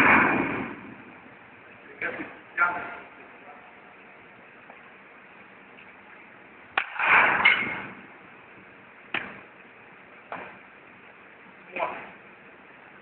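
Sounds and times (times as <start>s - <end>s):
bat knock: 6.8s - 8.0s
bat tip tapping plate: 9.1s - 9.4s.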